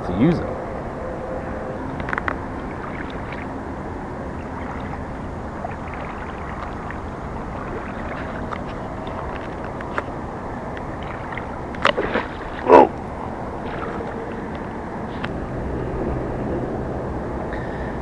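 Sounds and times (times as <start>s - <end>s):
steady rushing noise: 0.0s - 18.0s
water swishing around legs: 2.5s - 15.3s.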